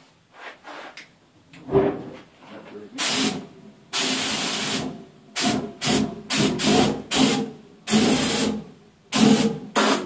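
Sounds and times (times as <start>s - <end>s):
aerosol spray hissing: 9.1s - 10.0s.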